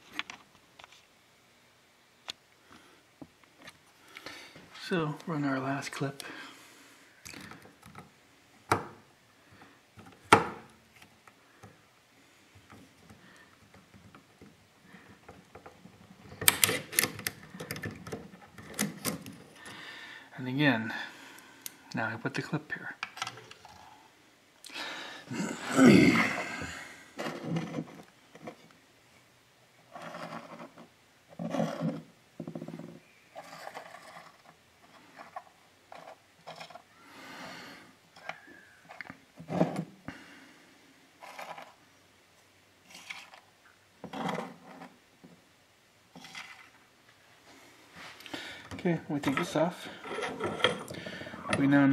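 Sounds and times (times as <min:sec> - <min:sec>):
man grunting with effort: 0:25.3 - 0:26.9.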